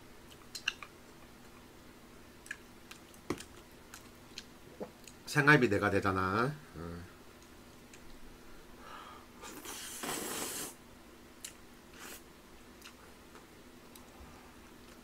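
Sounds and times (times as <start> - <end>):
chewing with light clicks: 0.2 - 1.7, 2.4 - 5.2, 7.4 - 8.2, 12.8 - 14.2
person slurping noodles: 9.4 - 10.8.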